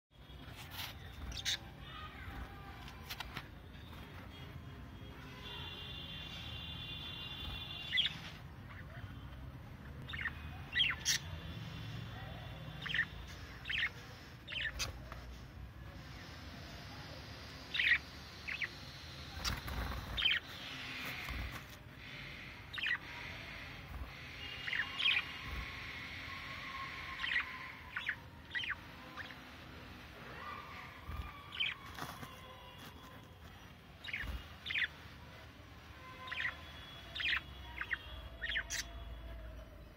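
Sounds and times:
budgerigars chirping: 10.0 - 11.3, 12.8 - 15.0, 17.7 - 29.6, 34.0 - 35.0, 36.2 - 39.0.

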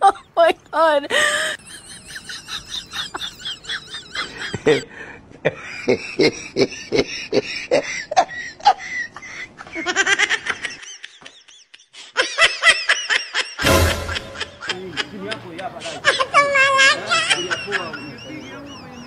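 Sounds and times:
high-pitched giggling: 0.0 - 4.8
person laughing: 1.1 - 4.9, 5.5 - 19.0.

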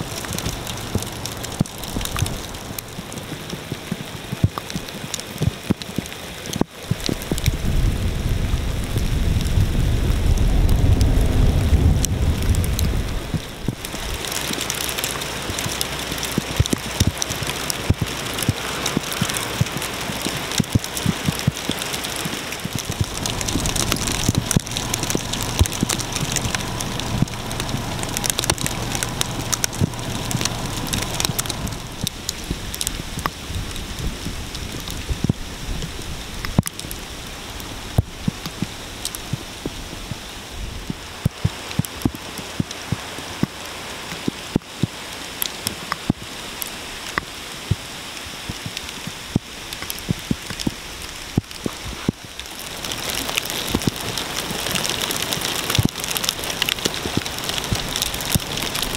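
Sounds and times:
low rumble: 7.2 - 15.0, 22.7 - 41.7
sleet hissing and ticking: 12.8 - 58.9.

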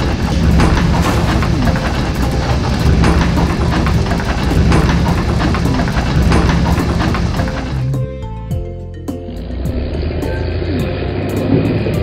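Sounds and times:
scattered knocks: 0.0 - 8.0
cartoon truck engine rumble: 0.0 - 12.0.

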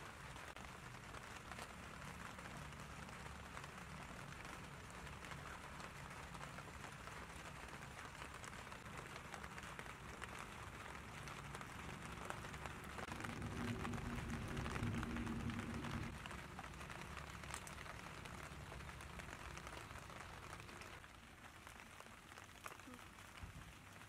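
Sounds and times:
small crackles and pops: 0.0 - 24.0
low steady hum: 9.6 - 21.0.

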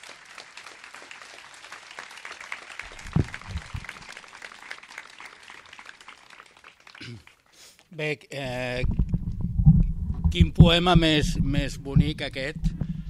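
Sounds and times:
audience applauding: 0.0 - 7.6
low thumps: 2.9 - 4.0, 8.6 - 13.0.

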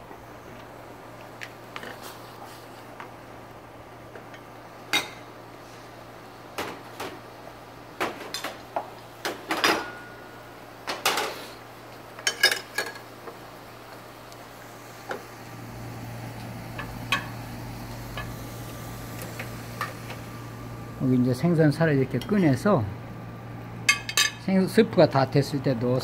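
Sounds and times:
low steady hum: 12.0 - 26.0.

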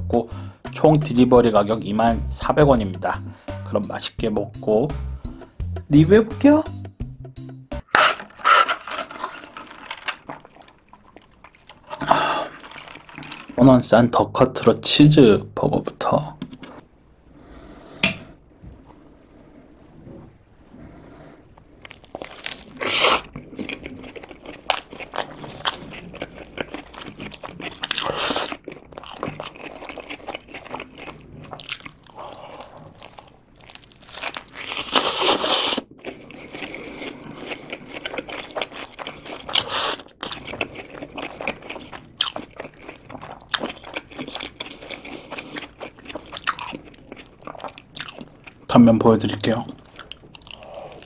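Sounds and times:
wet chewing: 7.8 - 13.6, 21.5 - 51.0.

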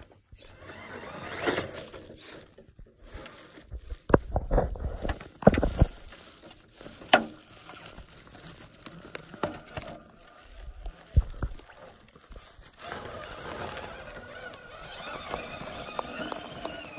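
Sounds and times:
motor and gears whining: 0.4 - 3.6, 8.9 - 16.9.

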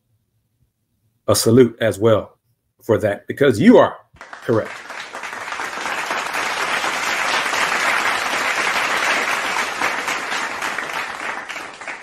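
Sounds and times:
crowd applause: 4.2 - 12.0.

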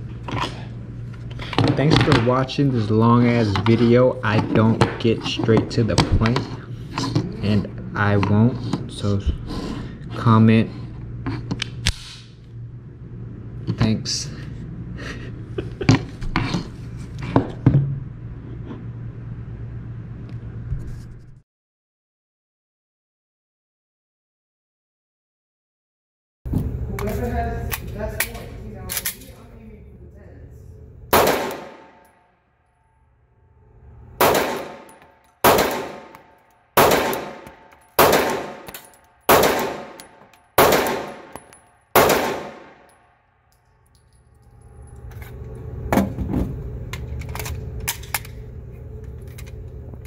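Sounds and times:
low hum: 0.0 - 21.4, 26.5 - 50.0
pistol handling clicks and knocks: 27.0 - 29.4, 36.1 - 42.2
pistol shots echoing: 31.1 - 32.1, 34.2 - 36.2, 36.8 - 43.0.

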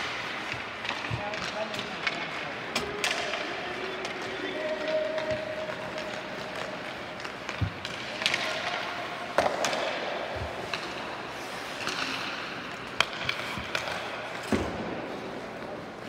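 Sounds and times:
hockey sticks cracking puck: 0.0 - 16.0
skates scraping on ice: 0.0 - 16.0.

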